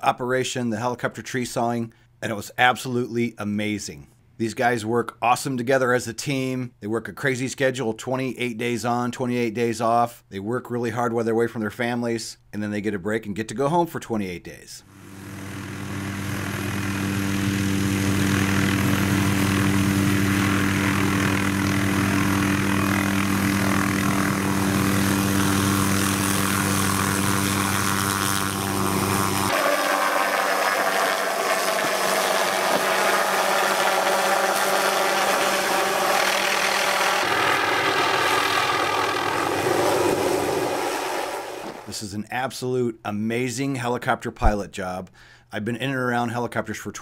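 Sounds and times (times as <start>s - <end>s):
helicopter hovering overhead: 14.9s - 41.8s
high turbine whine: 14.9s - 41.9s
low hum: 14.9s - 41.9s.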